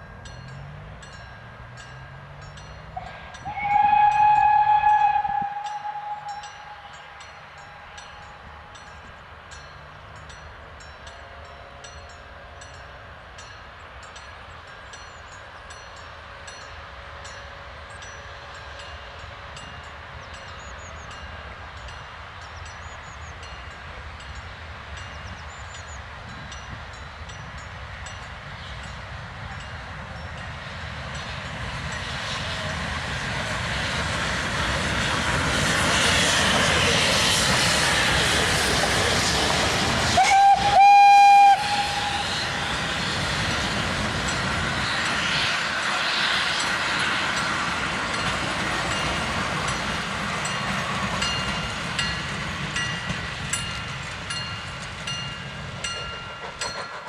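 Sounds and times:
steam locomotive passing: 0.0 - 57.0
steam whistle: 3.0 - 7.2, 40.0 - 43.2
train wheels clicking over rail joints: 30.0 - 57.0.

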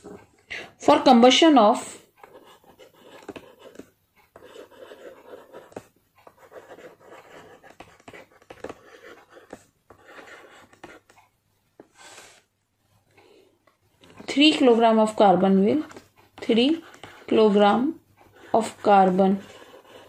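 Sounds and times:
stylus scratching on tablet screen: 0.8 - 12.4, 14.0 - 20.0.

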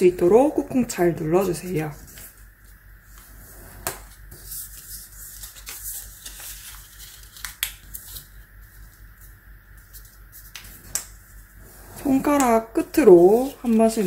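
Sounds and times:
paper rustling and crinkling: 1.3 - 3.3, 4.0 - 10.9, 12.9 - 14.0
sharp paper ticks: 4.7 - 8.4.

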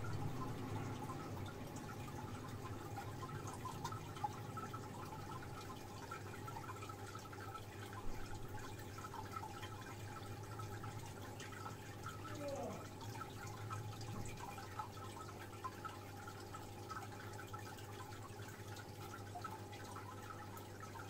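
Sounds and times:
filter low hum: 0.0 - 21.0
water drips: 0.0 - 21.0
water trickling: 0.0 - 21.0.

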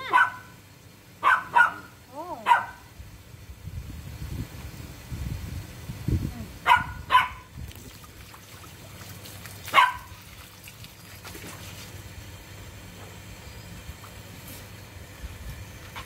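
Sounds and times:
dog barking: 0.0 - 0.5, 1.2 - 2.9, 6.6 - 7.5, 9.7 - 10.1.

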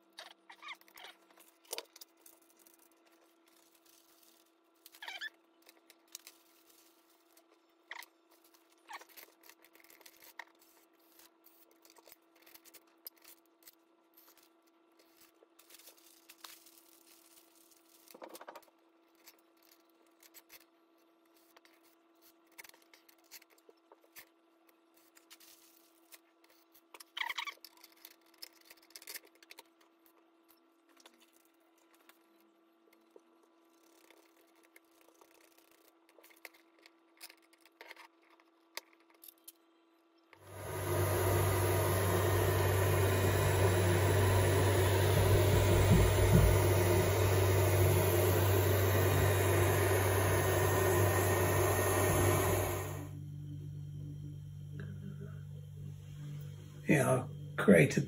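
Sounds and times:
faint steady hum: 39.2 - 58.0.

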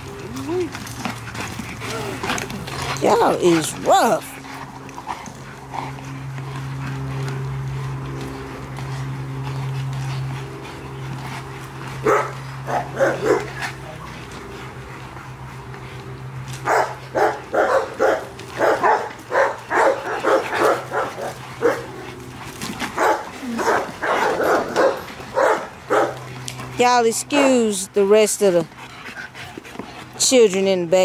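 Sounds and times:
steady low hum: 0.0 - 31.0
dogs barking: 1.2 - 13.8, 16.6 - 26.6.

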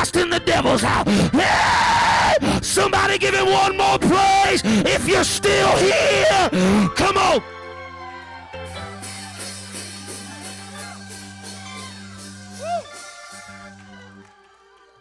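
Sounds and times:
church band playing: 0.0 - 14.9
person shouting: 1.3 - 7.4
drum and cymbal hits: 8.8 - 13.8.

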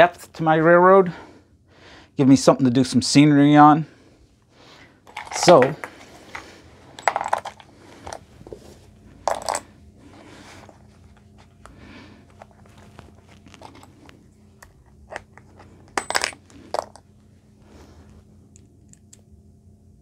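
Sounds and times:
metal bits clicking and rattling: 5.1 - 5.8, 7.0 - 8.2, 9.2 - 9.7, 15.1 - 17.0.

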